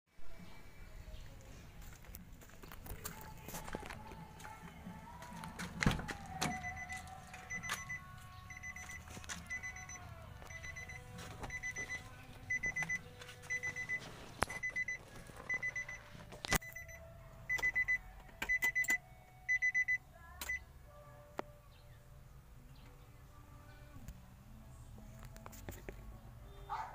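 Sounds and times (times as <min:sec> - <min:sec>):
dashboard warning chime beeping: 0:06.5 - 0:20.6.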